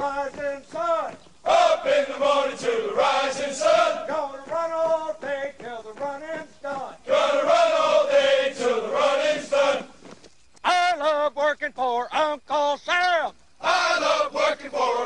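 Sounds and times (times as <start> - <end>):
men chanting in unison: 0.0 - 10.0, 13.6 - 15.0.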